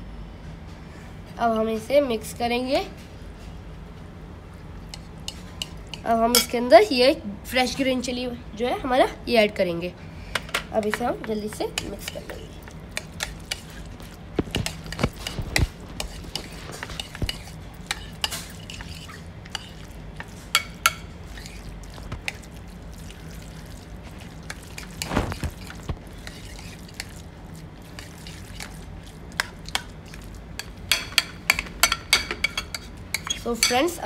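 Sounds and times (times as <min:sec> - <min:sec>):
spoon clinking and scraping bowl: 0:10.9 - 0:27.2, 0:27.8 - 0:33.8.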